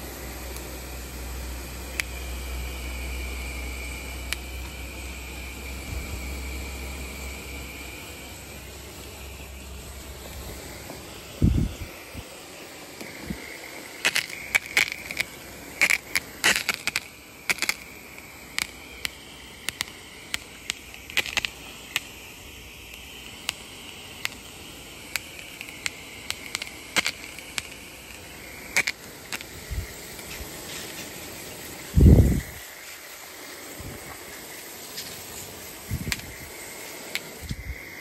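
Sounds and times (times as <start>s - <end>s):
hose spraying water on grass: 0.0s - 38.0s
sharp clicks and crackles: 1.6s - 2.4s, 3.3s - 4.9s, 12.9s - 31.6s, 34.0s - 38.0s.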